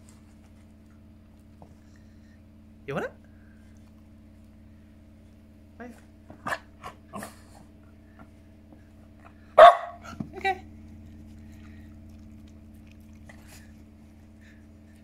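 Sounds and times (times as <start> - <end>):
puppy barking: 6.4 - 7.3, 9.6 - 10.2.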